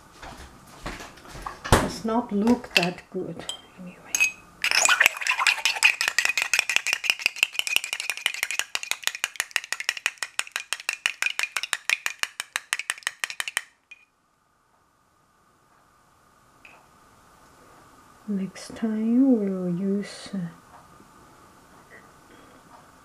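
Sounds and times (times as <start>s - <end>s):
spoon rattling in plastic bottle: 4.6s - 14.0s.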